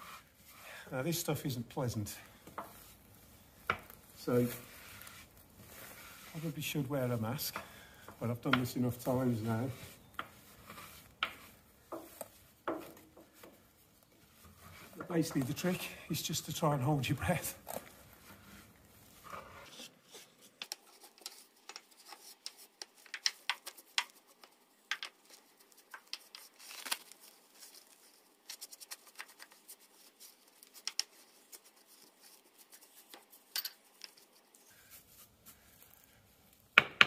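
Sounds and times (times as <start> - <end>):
brush scraping soot from metal: 0.0 - 36.7.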